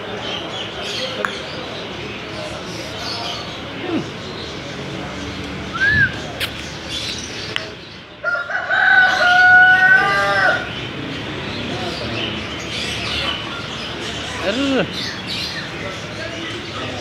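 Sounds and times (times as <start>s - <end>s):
rooster crowing: 8.2s - 10.7s.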